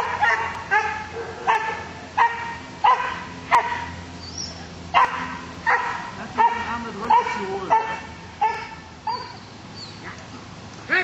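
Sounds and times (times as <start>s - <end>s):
dog barking: 0.0s - 3.9s, 4.9s - 9.4s.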